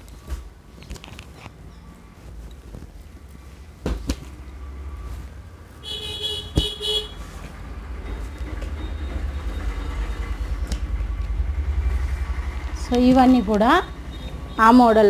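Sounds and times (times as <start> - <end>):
vehicle horn: 5.8 - 7.4
low rumble: 7.2 - 15.0.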